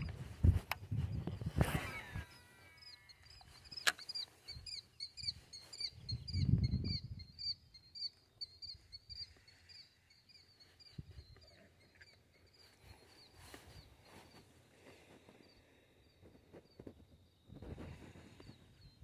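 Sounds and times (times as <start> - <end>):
bird chirping rapidly: 1.4 - 13.4.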